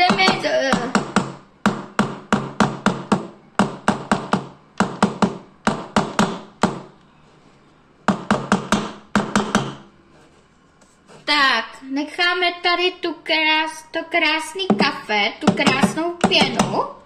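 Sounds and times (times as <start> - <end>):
beater tapping plastic bowl rim: 14.6 - 16.8.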